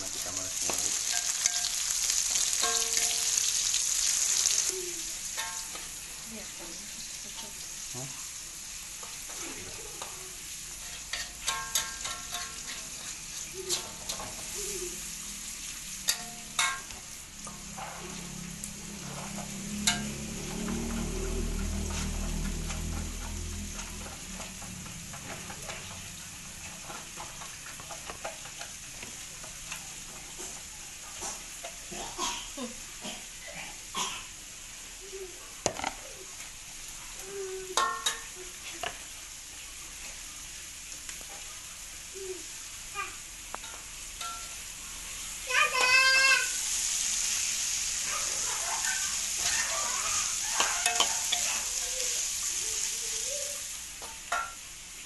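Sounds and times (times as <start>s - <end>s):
food sizzling in hot oil: 0.0s - 55.0s.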